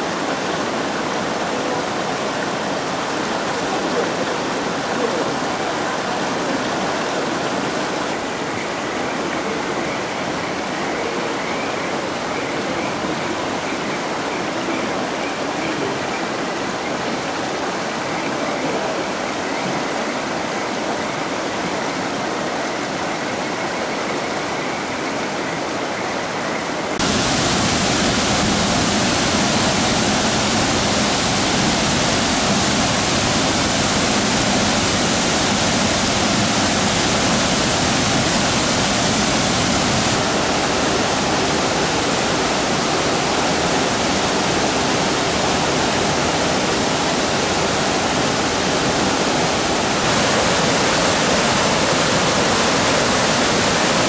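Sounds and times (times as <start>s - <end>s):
flowing water: 0.0s - 54.0s
waterfall pouring into pool: 26.9s - 54.0s.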